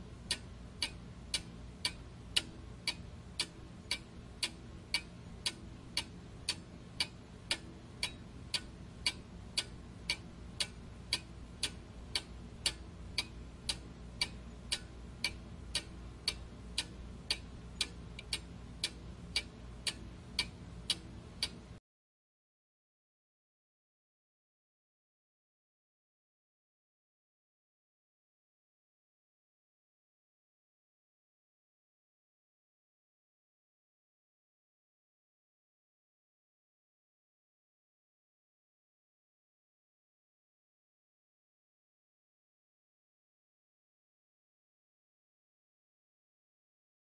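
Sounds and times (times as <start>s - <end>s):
low steady hum: 0.0s - 21.8s
clock ticking: 0.3s - 21.7s.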